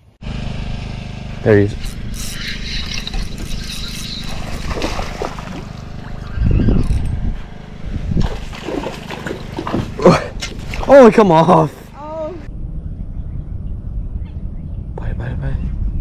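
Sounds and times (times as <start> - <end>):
boat motor hum: 0.0 - 15.1
water trickling and sloshing: 2.9 - 6.4, 8.2 - 11.2.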